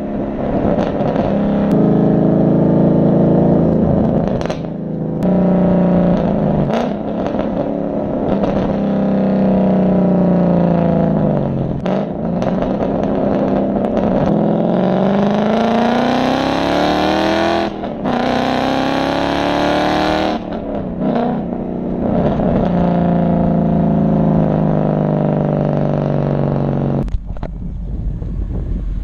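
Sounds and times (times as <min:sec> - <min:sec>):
car exhaust under hard acceleration: 0:00.0 - 0:29.0
road noise: 0:00.0 - 0:29.0
wind noise: 0:27.0 - 0:29.0.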